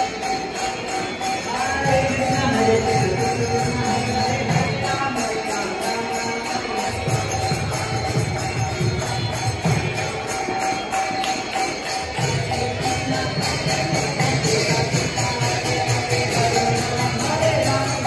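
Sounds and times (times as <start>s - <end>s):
hand cymbals struck rhythmically: 0.0s - 18.0s.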